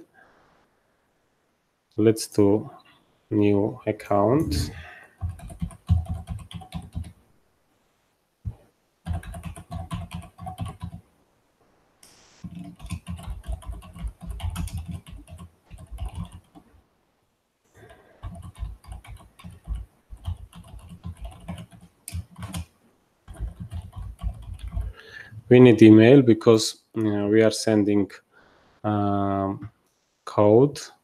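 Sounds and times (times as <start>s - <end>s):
computer keyboard typing: 5.1s - 7.2s, 9.0s - 11.0s, 12.4s - 16.7s, 17.8s - 22.7s, 23.3s - 25.0s.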